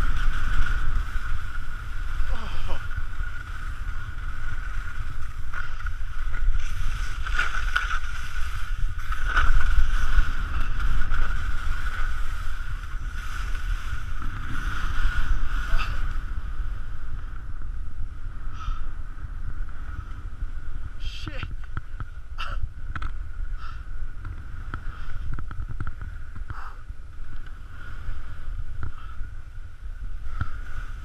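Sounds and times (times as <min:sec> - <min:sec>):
skis scraping on snow: 0:00.0 - 0:17.4
wind buffeting microphone: 0:00.0 - 0:31.0.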